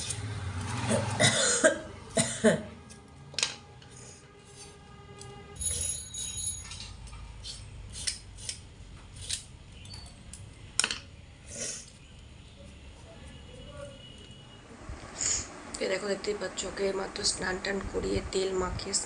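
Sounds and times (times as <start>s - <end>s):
vegetable peeler scraping: 0.0s - 1.2s, 3.9s - 5.3s, 7.3s - 9.5s.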